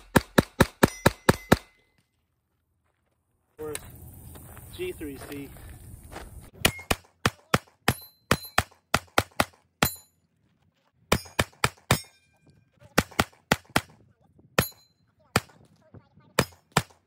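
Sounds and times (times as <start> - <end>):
pistol fired rapidly: 0.0 - 1.7, 6.7 - 9.6, 11.1 - 12.1, 12.9 - 14.0, 16.4 - 17.0.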